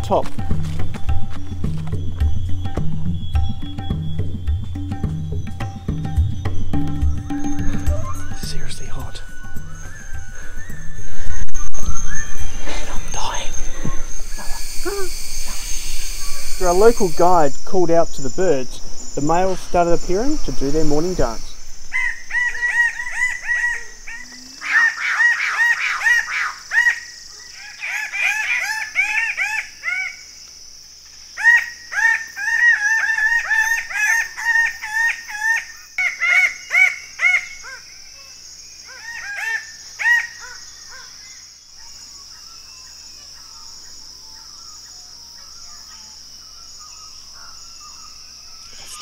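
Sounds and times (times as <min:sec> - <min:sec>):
bird display calls: 0:00.0 - 0:30.4
high insect drone: 0:00.0 - 0:49.0.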